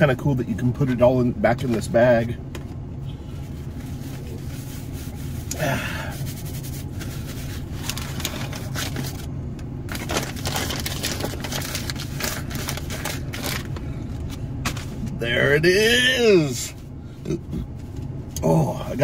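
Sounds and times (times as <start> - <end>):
steady low hum: 0.0 - 19.0
paper bag crinkling: 6.6 - 9.3, 9.9 - 13.8.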